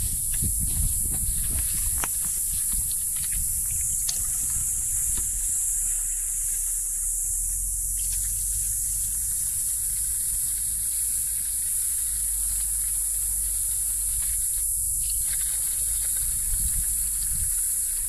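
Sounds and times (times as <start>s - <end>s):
steady high hiss: 0.0s - 18.0s.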